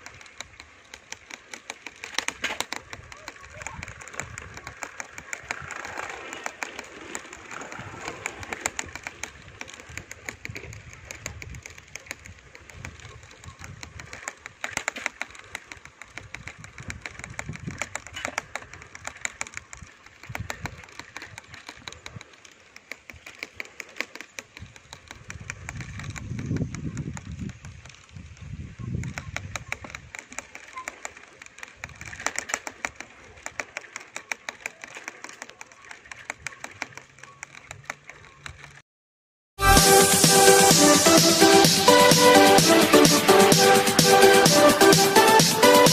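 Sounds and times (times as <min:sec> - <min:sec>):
rapid crackle of clicks: 0:00.0 - 0:38.8, 0:39.7 - 0:45.9
wind rumbling on microphone: 0:02.8 - 0:06.2, 0:07.4 - 0:14.7, 0:15.8 - 0:22.2, 0:24.5 - 0:30.3.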